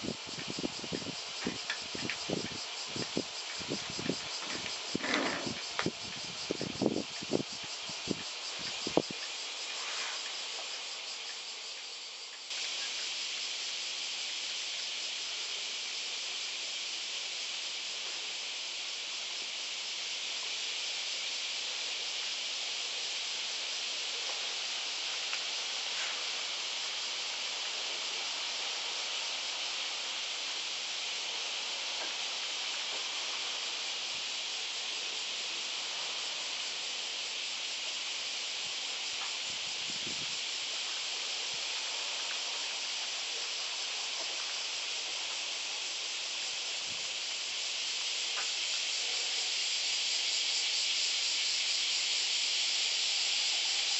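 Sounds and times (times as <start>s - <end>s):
high-pitched insect chorus: 0.0s - 53.9s.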